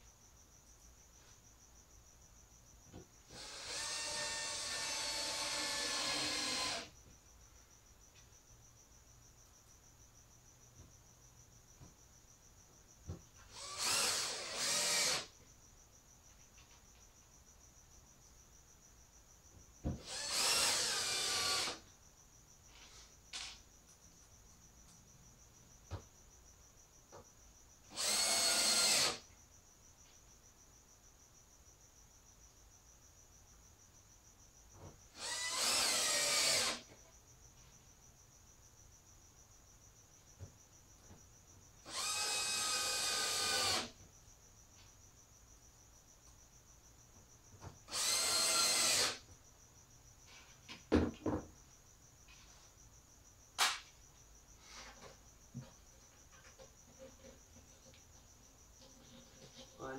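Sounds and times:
cordless drill driving screws: 3.3 - 6.9, 13.5 - 15.3, 20.0 - 21.8, 27.9 - 29.2, 35.2 - 36.8, 41.9 - 43.9, 47.9 - 49.2.

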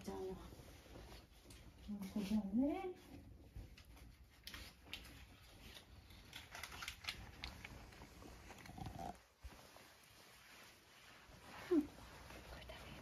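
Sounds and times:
cat crunching dry treats: 6.1 - 9.1.

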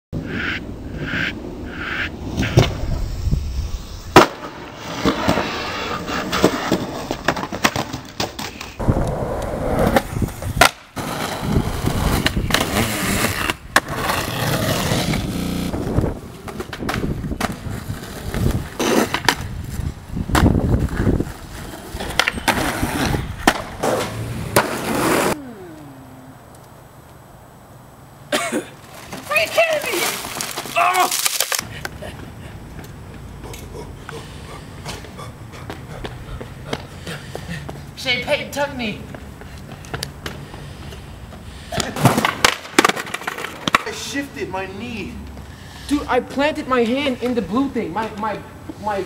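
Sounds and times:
skateboard rolling on concrete: 0.2 - 25.8, 26.5 - 30.8, 31.6 - 49.0
skateboard pops and landings: 4.1 - 5.6, 6.3 - 15.3, 16.5 - 19.5, 20.3 - 20.9, 22.0 - 25.4, 41.8 - 43.9
skateboard trucks grinding metal: 4.2 - 7.7, 8.8 - 16.6, 20.8 - 25.4.

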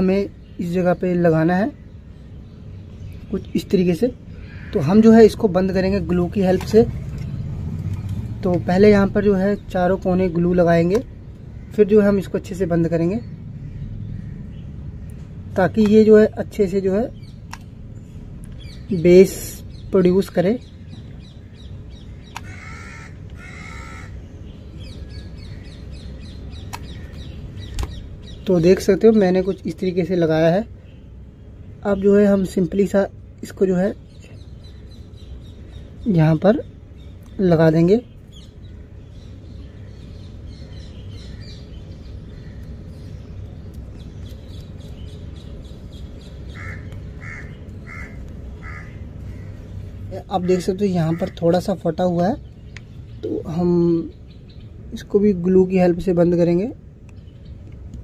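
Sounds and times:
small birds chirping: 0.0 - 58.0
steady low hum: 0.0 - 58.0
harsh bird caws: 4.2 - 7.8, 11.0 - 12.3, 13.5 - 15.2, 20.9 - 28.4, 38.3 - 43.2, 46.0 - 51.9
crow cawing: 4.4 - 5.0, 22.2 - 24.3, 46.5 - 51.4
sharp clicks: 17.4 - 17.7, 26.6 - 28.0.

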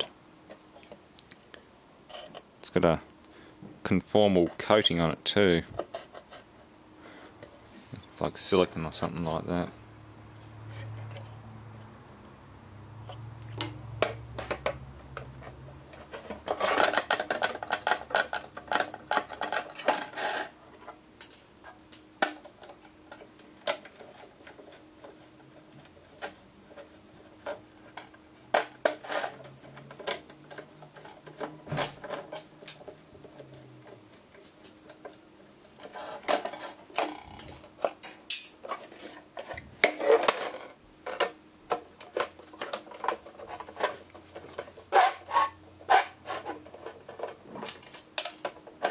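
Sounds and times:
metal scraping and rattling: 13.6 - 21.4.

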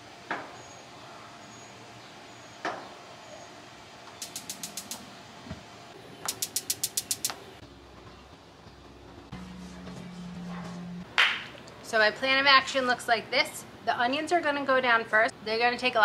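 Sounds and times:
electronic igniter clicking: 4.2 - 5.0, 6.3 - 7.4.

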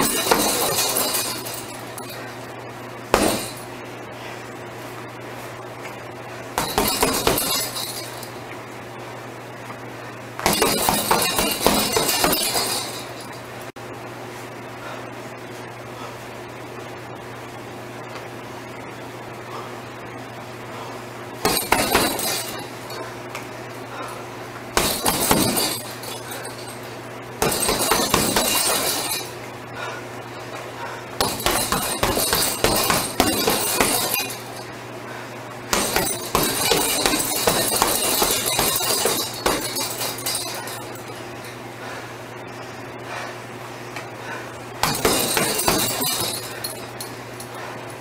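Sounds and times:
metal chain jangling: 0.0 - 2.3, 6.6 - 8.4, 10.5 - 13.4, 21.5 - 23.1, 24.8 - 29.4, 31.2 - 34.7, 35.8 - 41.4, 44.8 - 47.6
punches on heavy bag: 3.1 - 3.7, 10.4 - 12.9, 24.8 - 26.4, 31.2 - 34.4, 35.7 - 40.9, 44.8 - 46.6.

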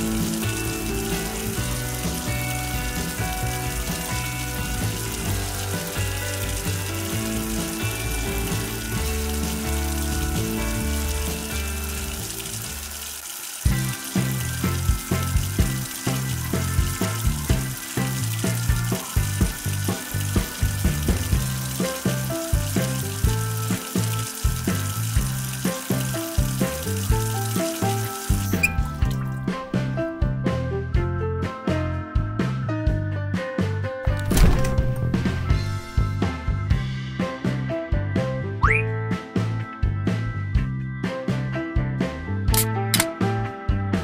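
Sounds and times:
water trickling into sink: 0.0 - 29.6
background music: 0.0 - 44.0.

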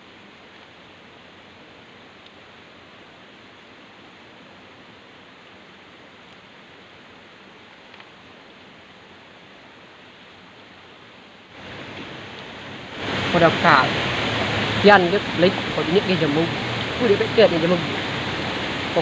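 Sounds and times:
steady background hiss: 0.0 - 19.0.

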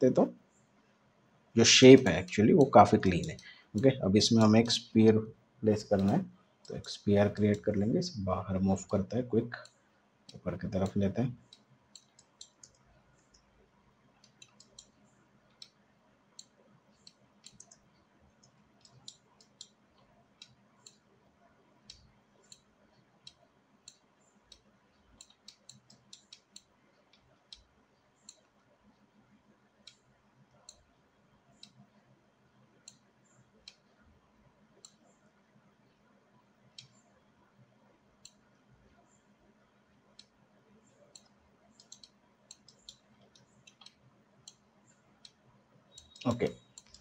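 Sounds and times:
low steady hum: 0.0 - 47.0
computer mouse clicks: 2.0 - 4.9, 5.7 - 7.6, 9.6 - 13.5, 14.2 - 15.8, 16.4 - 21.1, 21.8 - 29.1, 29.8 - 34.0, 34.7 - 35.2, 36.6 - 39.3, 40.1 - 47.0.

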